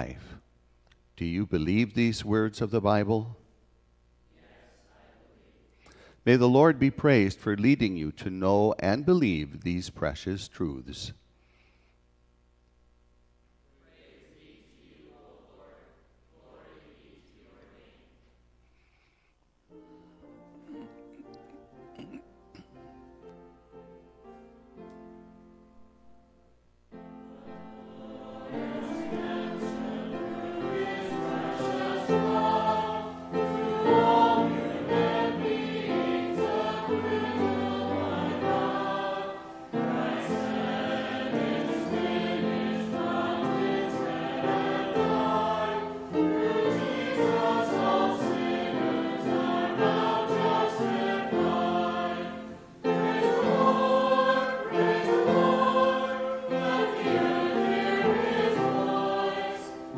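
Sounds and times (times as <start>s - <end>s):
choir singing a hymn: 4.3s - 5.7s, 13.8s - 18.2s, 26.9s - 59.9s.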